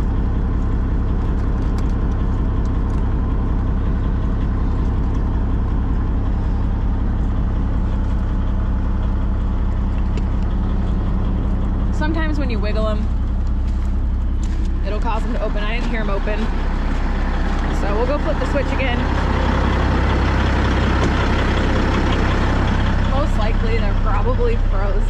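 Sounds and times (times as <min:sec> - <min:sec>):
diesel truck engine idling: 0:00.0 - 0:25.0.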